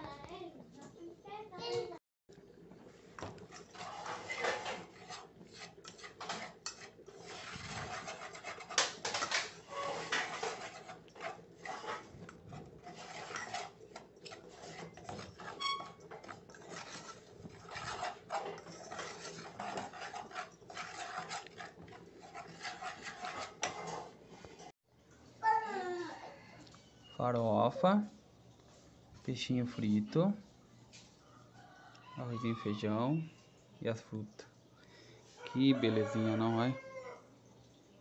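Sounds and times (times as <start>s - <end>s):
metal spoon scraping a saucepan: 3.4s - 24.7s.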